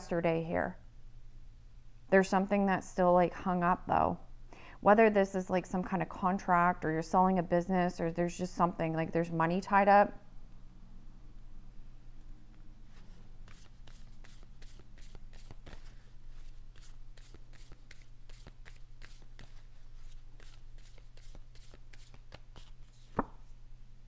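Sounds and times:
cards shuffled by hand: 12.9 - 23.5.

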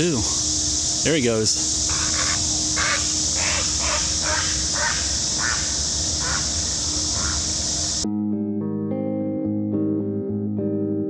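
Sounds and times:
heron croaking: 0.0 - 8.0
steady high hiss: 0.0 - 8.0.

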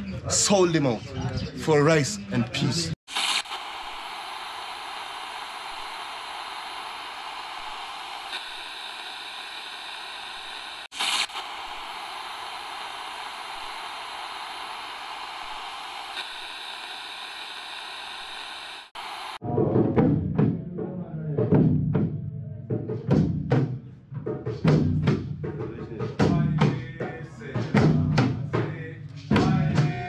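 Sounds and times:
static hiss: 3.1 - 19.4.

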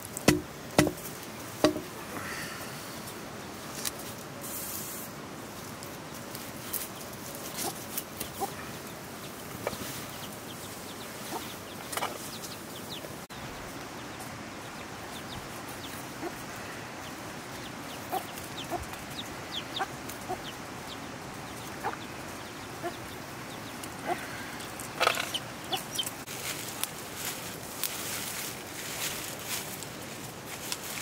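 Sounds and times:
chickens clucking: 6.6 - 26.3.

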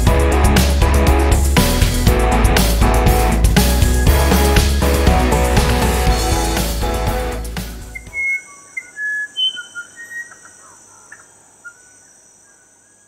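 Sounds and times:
whistled bird calls: 7.9 - 13.0.

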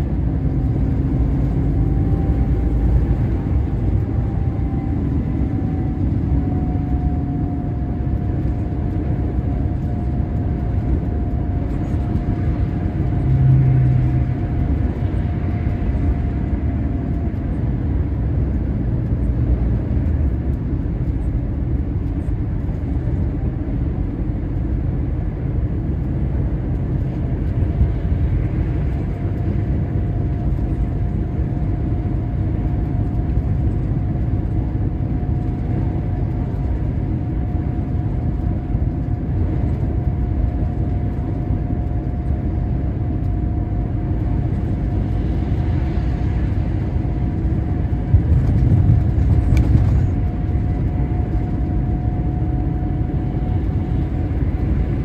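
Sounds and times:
engine and road noise drone: 0.0 - 55.0.

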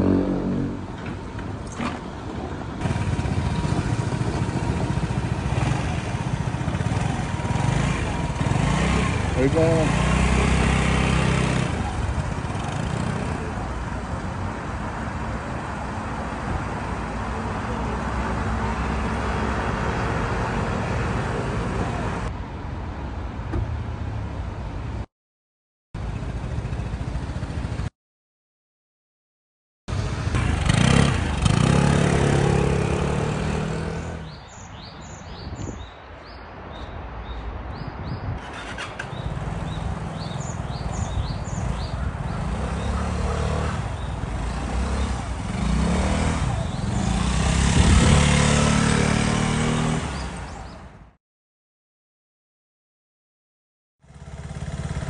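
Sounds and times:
street traffic: 0.0 - 25.1, 26.0 - 27.9, 29.9 - 51.2, 54.0 - 55.0
scooter engine running: 2.8 - 13.6, 26.0 - 27.9, 29.9 - 34.0, 38.5 - 50.8, 54.0 - 55.0.

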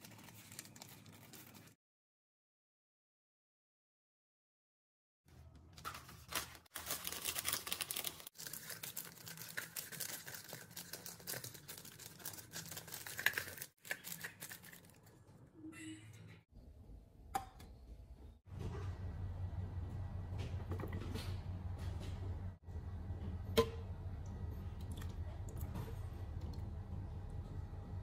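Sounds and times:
baking paper crinkling: 0.0 - 1.8, 5.7 - 15.2.

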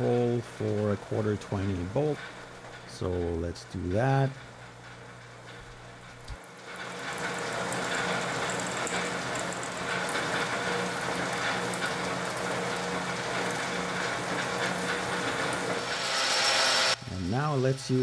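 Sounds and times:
lathe hum: 0.0 - 18.0
drill cutting into metal: 6.8 - 17.0.

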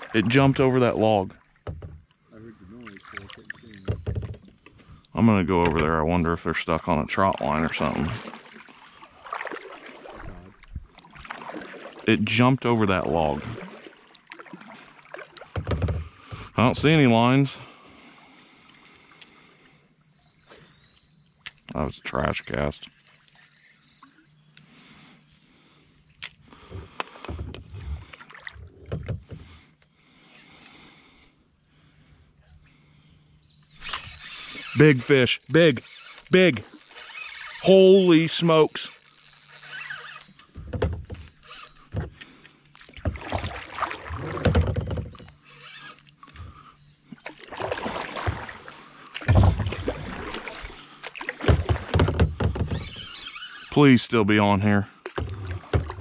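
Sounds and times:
faint water: 0.0 - 56.0
hollow bumps against kayak hull: 1.6 - 2.1, 3.8 - 4.8, 15.5 - 16.6, 40.5 - 41.3, 43.0 - 45.3, 49.2 - 50.5, 51.2 - 52.9, 55.1 - 56.0.

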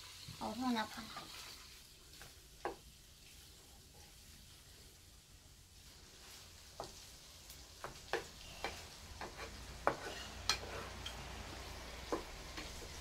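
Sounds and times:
faint sizzle of frying: 0.0 - 13.0
spatula knocking and scraping pan: 2.2 - 2.9, 7.8 - 13.0.

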